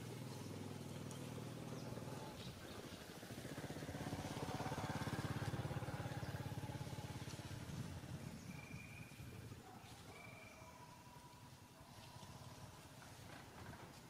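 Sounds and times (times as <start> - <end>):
vehicle engine passing by: 0.0 - 10.0.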